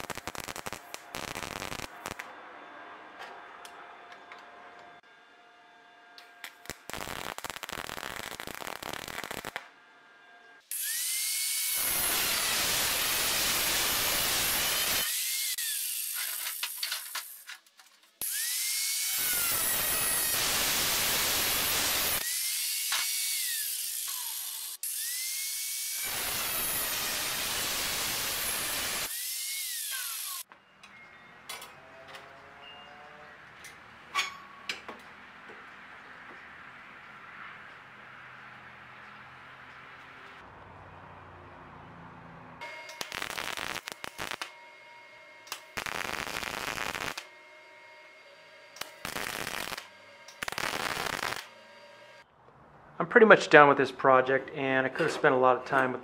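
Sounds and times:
welder crackling: 0.0s - 2.3s, 6.2s - 9.7s, 10.7s - 30.5s, 42.6s - 44.6s, 45.4s - 47.4s, 48.3s - 52.2s
angle grinder grinding steel: 10.7s - 17.5s, 18.2s - 30.5s.

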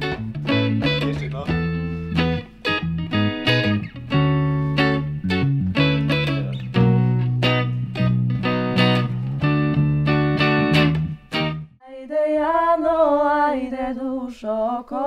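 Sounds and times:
bass and electric guitar chords: 0.0s - 11.8s
person singing unaccompanied: 11.8s - 15.0s.

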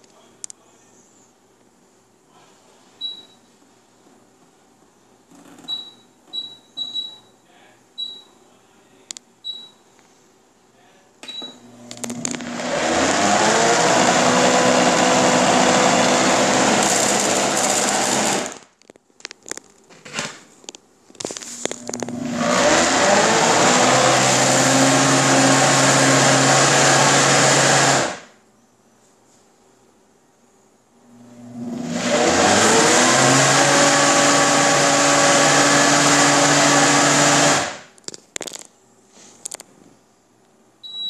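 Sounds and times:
blender motor running: 11.6s - 18.6s, 21.7s - 28.3s, 31.1s - 37.8s.

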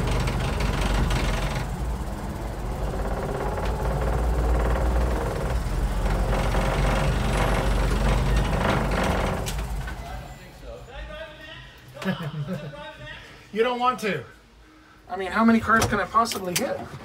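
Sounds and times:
sliding door rattling: 0.0s - 10.0s
truck engine running at low speed: 0.0s - 10.2s.

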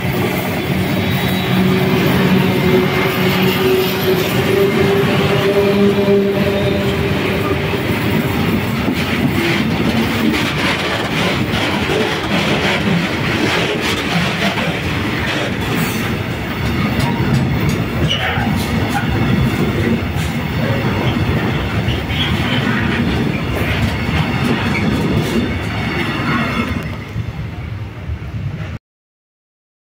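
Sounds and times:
diesel locomotive hum: 0.0s - 28.8s
train wheels rumbling on rail: 0.0s - 28.8s
wheels clicking over rail joints: 6.8s - 27.1s.

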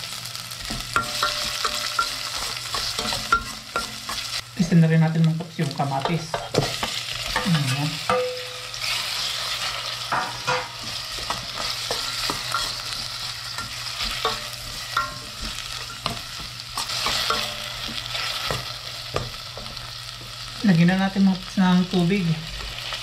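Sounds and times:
food sizzling in oil: 0.0s - 23.0s
stirring scrapes in pan: 1.0s - 4.4s, 10.8s - 19.8s.

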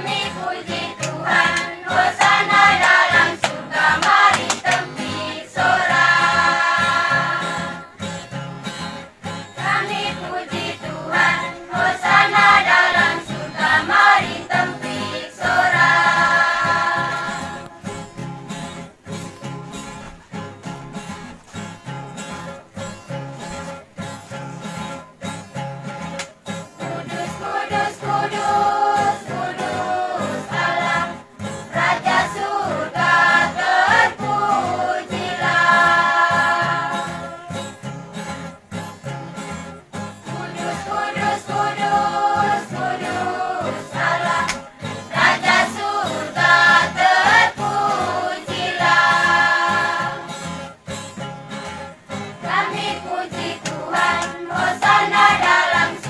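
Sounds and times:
church choir singing: 0.0s - 18.4s, 26.8s - 37.9s, 39.9s - 50.7s, 52.3s - 56.0s
strummed acoustic guitars: 0.0s - 56.0s.

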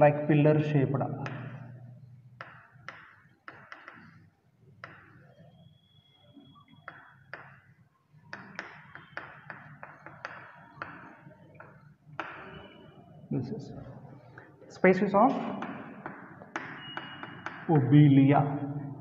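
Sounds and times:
chalk tapping on chalkboard: 1.2s - 1.6s, 2.4s - 5.3s, 6.7s - 12.8s, 15.5s - 17.9s.

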